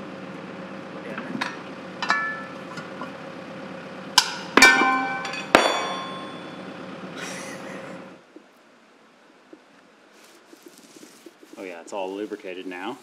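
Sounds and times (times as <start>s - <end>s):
metal tools clanking: 1.3s - 3.1s, 4.2s - 6.6s.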